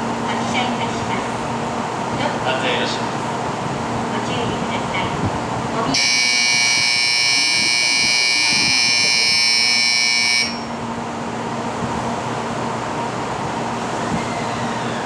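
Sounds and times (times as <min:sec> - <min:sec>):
low steady hum: 0:04.0 - 0:12.0
shrill departure buzzer: 0:05.9 - 0:10.8.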